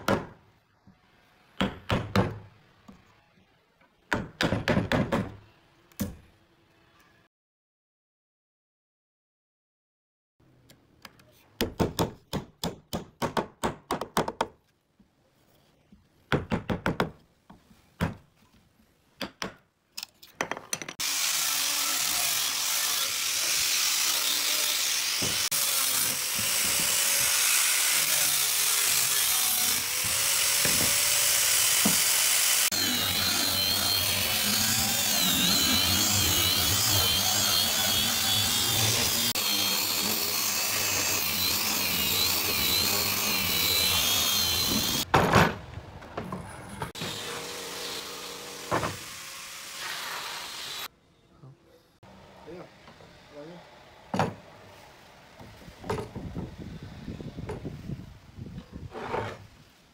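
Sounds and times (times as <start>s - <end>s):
angle grinder sanding wood: 21.0s - 45.1s, 47.0s - 50.9s.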